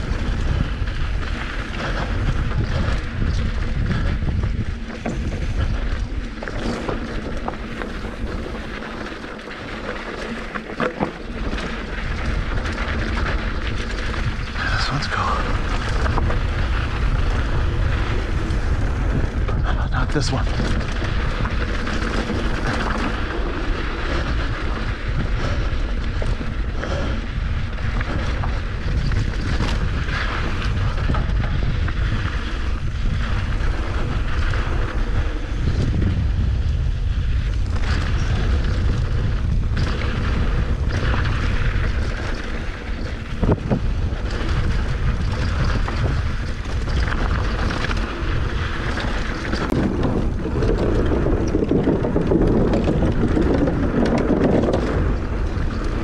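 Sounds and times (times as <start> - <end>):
bike knocking on rocks: 0.0 - 14.6, 15.7 - 19.6, 37.5 - 56.0
tyres rumbling on rocky trail: 0.0 - 56.0
wind rushing over microphone: 0.0 - 56.0.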